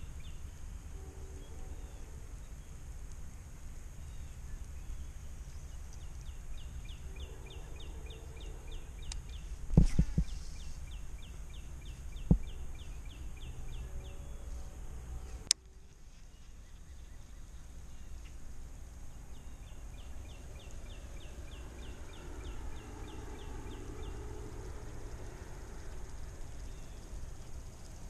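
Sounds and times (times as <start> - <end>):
wind rumbling on microphone: 8.4 - 14.4.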